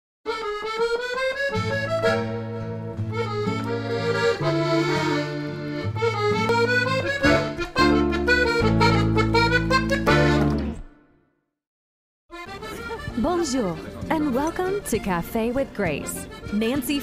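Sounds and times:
held bass notes: 0:00.3 - 0:10.9
accordion melody: 0:00.3 - 0:11.0, 0:12.3 - 0:17.0.

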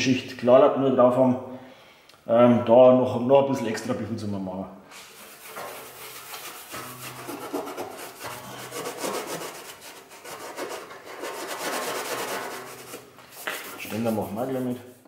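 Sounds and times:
scouring pad scrubbing metal: 0:05.0 - 0:14.9.

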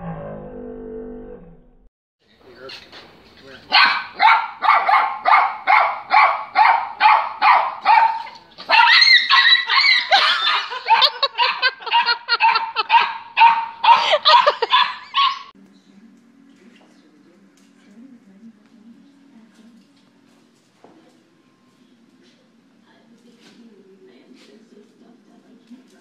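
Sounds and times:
small dog barking: 0:03.7 - 0:15.5.

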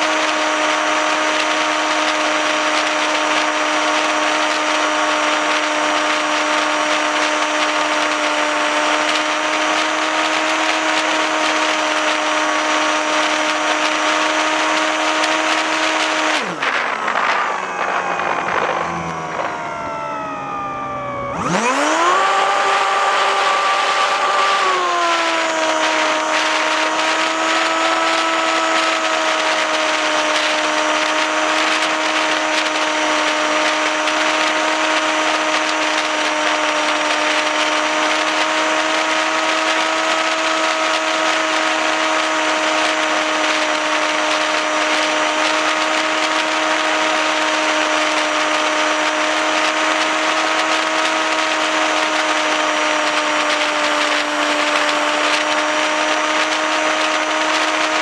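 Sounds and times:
electric motor and propeller whine: 0:00.0 - 0:58.0
wind rushing over microphone: 0:14.6 - 0:20.8.

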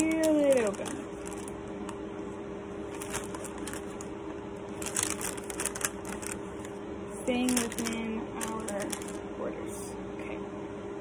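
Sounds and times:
paper wrapper crinkling: 0:00.0 - 0:01.7, 0:02.9 - 0:09.2
faint hum: 0:00.0 - 0:11.0.

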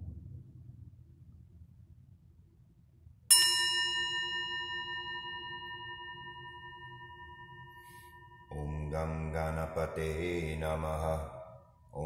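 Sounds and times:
metal singing bowl ringing: 0:03.3 - 0:10.5.

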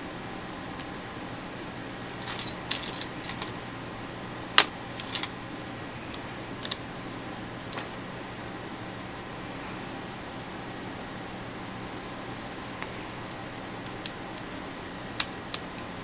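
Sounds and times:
plastic parts clicking and clattering: 0:02.1 - 0:03.6, 0:04.5 - 0:05.3, 0:06.1 - 0:06.8, 0:07.7 - 0:08.0.

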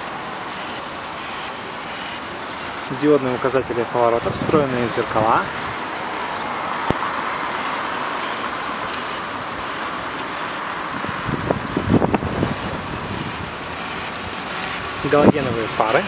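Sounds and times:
road traffic: 0:00.0 - 0:16.0.

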